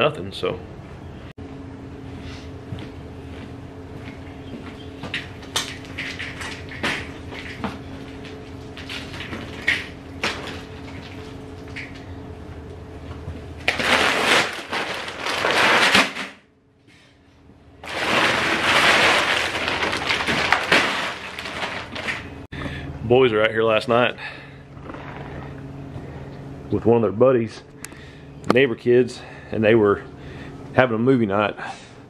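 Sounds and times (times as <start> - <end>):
feed bag crinkling: 13.6 - 16.2, 17.8 - 22.5
mesh cart rattling on concrete: 17.8 - 22.3
faint steady hum: 18.8 - 32.0.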